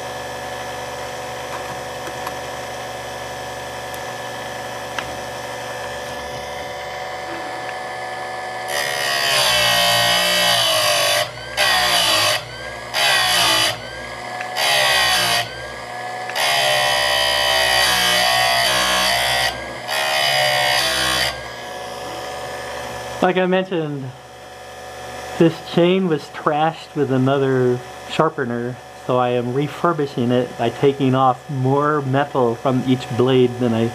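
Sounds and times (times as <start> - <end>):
grinding wheel grinding metal: 0.0 - 23.6
chainsaw sharpener whining: 0.0 - 33.9.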